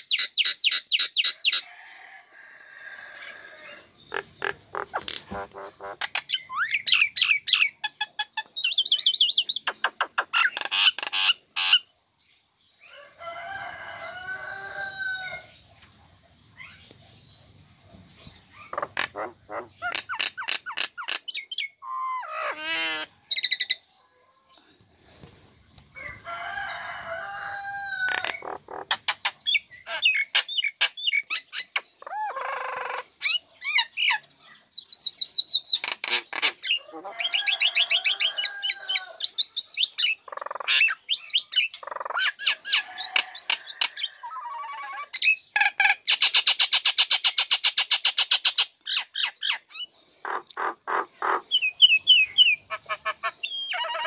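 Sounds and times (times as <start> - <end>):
bird song whistles and chatters: 4.1 - 11.8, 28.1 - 38.1, 51.4 - 54.0.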